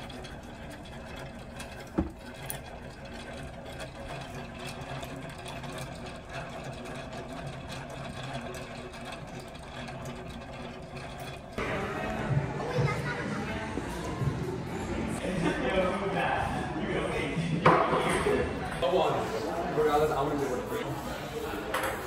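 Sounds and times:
yarn winder whirring: 0.0 - 17.4.

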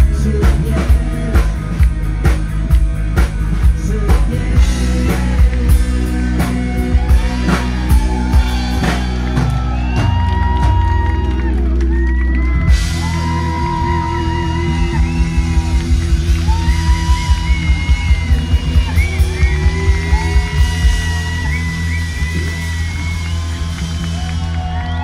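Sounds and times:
lead singer singing: 0.0 - 2.4, 3.5 - 10.6, 12.9 - 23.4
pounding drum beat: 0.0 - 11.4, 12.6 - 25.0
live rock band playing: 0.0 - 25.0.

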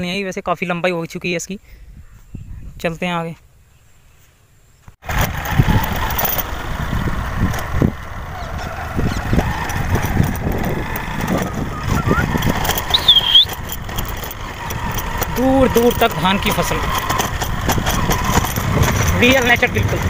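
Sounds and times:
wind buffeting microphone: 1.8 - 3.0, 5.1 - 20.0
motorcycle running: 5.0 - 20.0.

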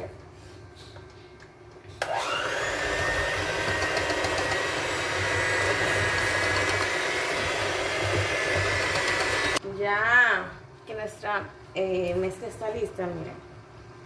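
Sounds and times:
electric hand mixer whining: 2.0 - 9.6.

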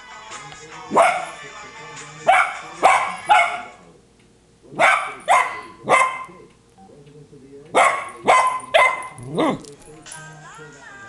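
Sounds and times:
puppy barking: 0.9 - 1.4, 2.3 - 3.8, 4.8 - 6.4, 7.7 - 9.6.

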